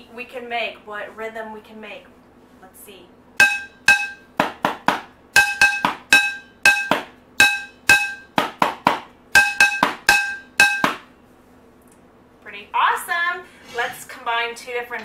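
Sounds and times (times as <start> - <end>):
stick striking metal pot: 3.4 - 11.1.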